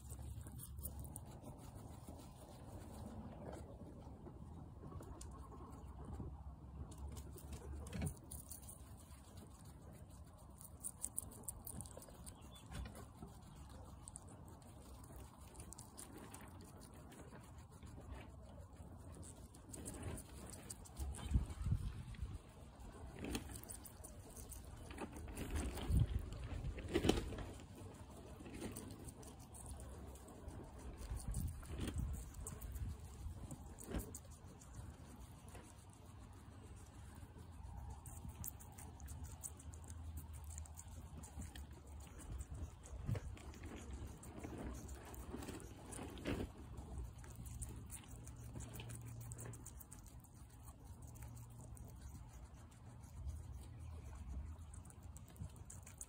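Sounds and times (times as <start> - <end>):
guinea pig chewing grape: 0.0 - 56.0
wind rumble on microphone: 19.9 - 27.6, 30.4 - 34.2, 36.7 - 51.2.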